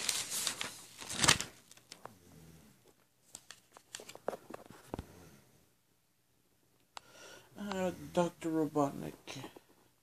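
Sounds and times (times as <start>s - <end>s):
paper pages rustling: 0.0s - 2.1s, 3.2s - 5.0s.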